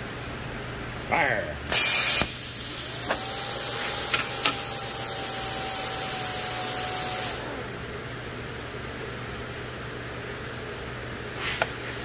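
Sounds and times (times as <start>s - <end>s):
plasma cutter hissing: 1.7s - 7.5s.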